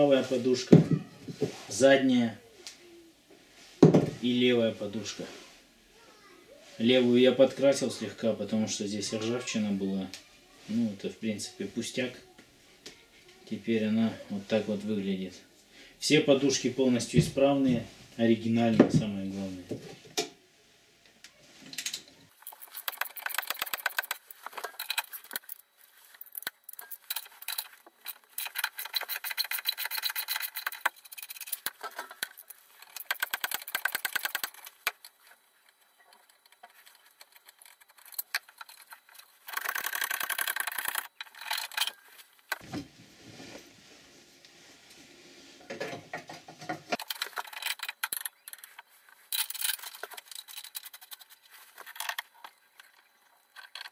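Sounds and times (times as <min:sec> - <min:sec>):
metal scrape: 0:22.3 - 0:42.6
metallic clinks and rattles: 0:22.3 - 0:42.6, 0:47.0 - 0:53.9
ratchet wrench clicking: 0:37.2 - 0:42.0.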